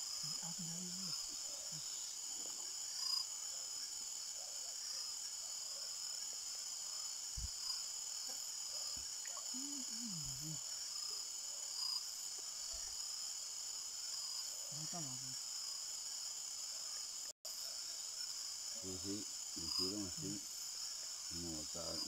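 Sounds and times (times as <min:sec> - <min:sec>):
insects chirping at night: 0:00.0 - 0:22.0
faint voice: 0:09.3 - 0:10.6, 0:18.8 - 0:20.4, 0:21.3 - 0:22.0.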